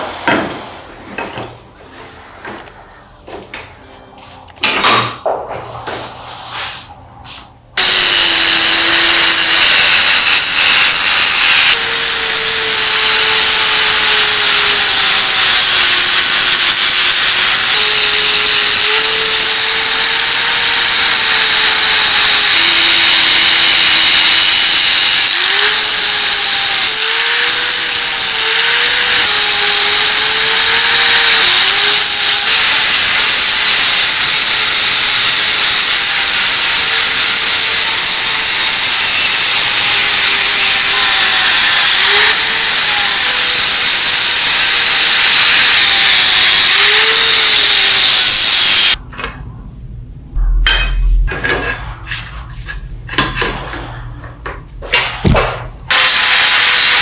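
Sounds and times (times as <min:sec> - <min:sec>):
angle grinder grinding steel: 0:07.8 - 0:49.0, 0:55.9 - 0:57.0.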